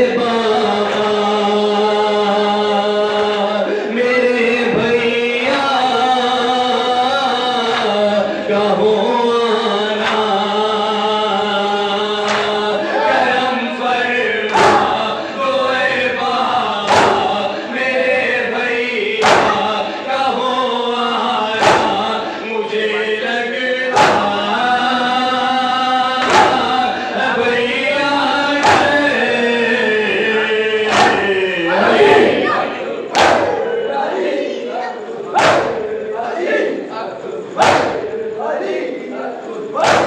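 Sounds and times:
men chanting into a microphone: 0:00.0 - 0:40.0
chest-beating in unison: 0:12.2 - 0:13.4, 0:14.5 - 0:15.2, 0:16.8 - 0:18.2, 0:19.1 - 0:20.1, 0:21.6 - 0:22.5, 0:23.9 - 0:24.5, 0:26.2 - 0:27.4, 0:28.5 - 0:34.6, 0:35.2 - 0:36.7, 0:37.5 - 0:38.8, 0:39.8 - 0:40.0.

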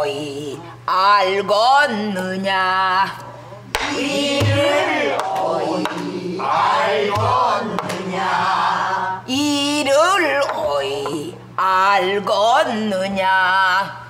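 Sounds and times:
group singing together: 0:03.7 - 0:12.3
deep drum thuds: 0:03.8 - 0:04.9, 0:06.6 - 0:08.0
drum stick strikes: 0:03.8 - 0:08.1.

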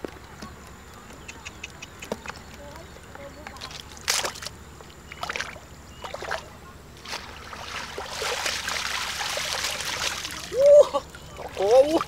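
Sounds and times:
colander sloshing through water: 0:05.1 - 0:12.0.

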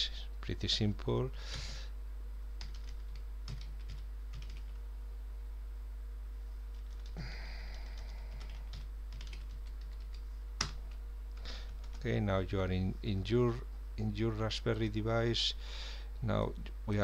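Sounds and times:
steady low hum: 0:00.0 - 0:17.0
keyboard keys tapping: 0:07.9 - 0:10.9.

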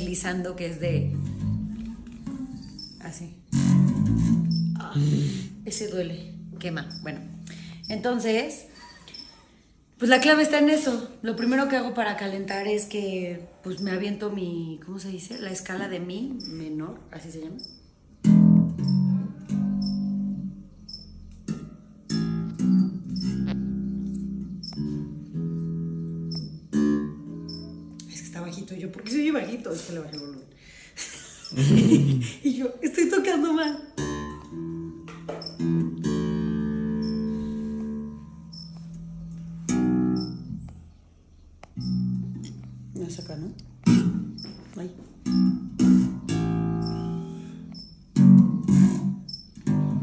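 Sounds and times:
electric bass notes: 0:00.0 - 0:08.4, 0:18.2 - 0:28.6, 0:34.0 - 0:50.0.

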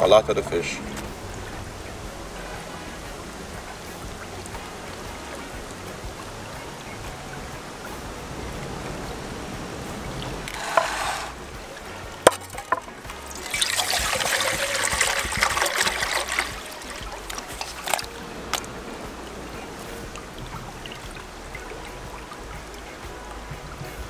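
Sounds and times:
stream hissing softly: 0:00.0 - 0:24.0
water pouring into metal pot: 0:09.9 - 0:23.9
sharp knocks: 0:10.4 - 0:13.2.

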